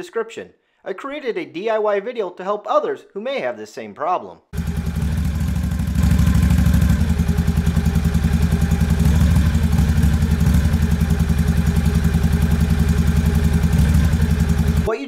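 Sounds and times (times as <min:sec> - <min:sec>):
engine idling rough: 0:04.6 - 0:14.9.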